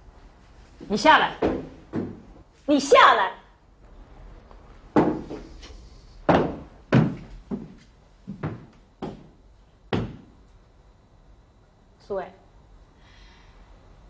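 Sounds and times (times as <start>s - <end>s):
footsteps on wooden stairs: 0.8s - 2.4s, 4.9s - 10.3s.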